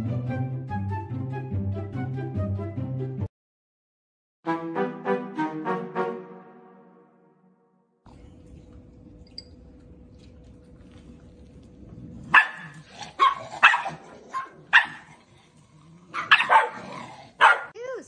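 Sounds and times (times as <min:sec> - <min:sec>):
dog growling: 0:11.1 - 0:17.4
dog barking: 0:12.3 - 0:15.1, 0:16.1 - 0:17.8.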